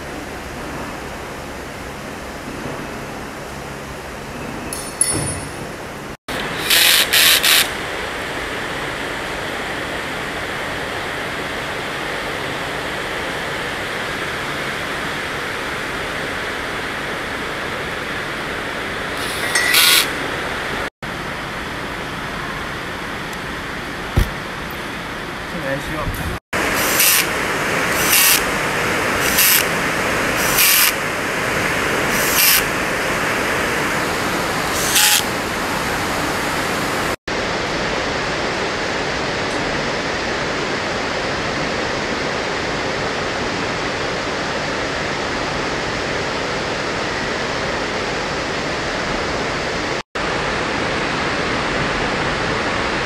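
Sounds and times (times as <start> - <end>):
cordless drill whirring: 6.3 - 7.8, 19.2 - 20.1, 26.8 - 27.3, 27.9 - 28.5, 29.2 - 29.7, 30.4 - 31.0, 32.1 - 32.7, 34.6 - 35.4.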